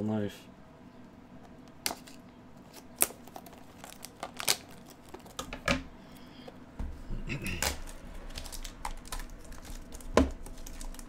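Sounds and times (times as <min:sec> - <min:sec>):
plastic wrap crinkling and tearing: 0:01.8 - 0:05.7, 0:07.4 - 0:11.0.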